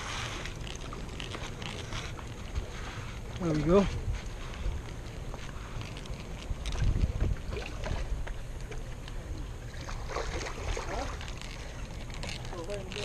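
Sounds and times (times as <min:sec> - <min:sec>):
wind buffeting microphone: 0:02.4 - 0:08.7.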